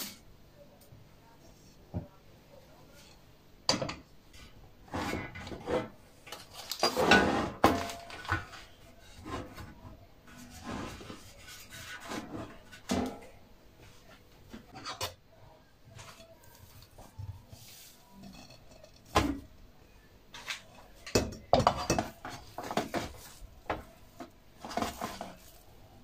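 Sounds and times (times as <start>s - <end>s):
metal tray scraping and clattering: 4.3s - 13.4s, 24.6s - 25.6s.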